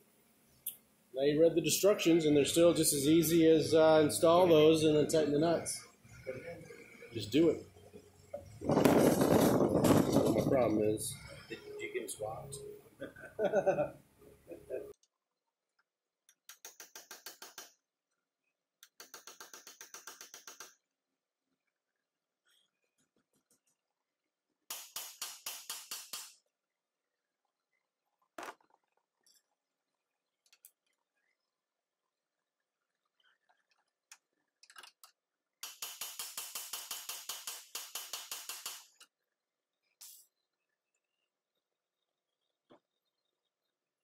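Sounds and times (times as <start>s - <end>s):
hand ratchet clicking: 35.6s - 39.0s.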